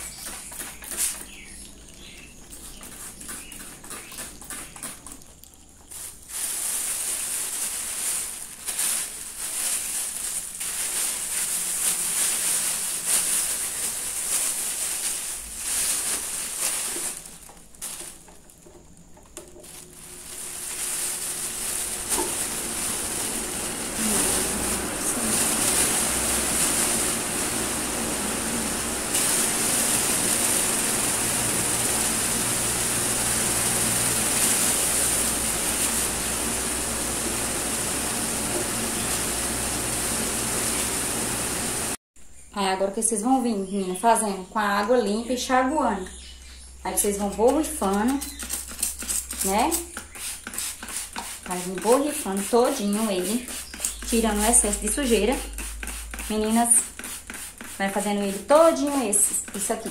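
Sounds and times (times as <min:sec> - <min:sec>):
plastic bag crinkling: 0:02.0 - 0:41.2
fan rushing inside bag: 0:05.9 - 0:18.4, 0:19.4 - 0:42.0.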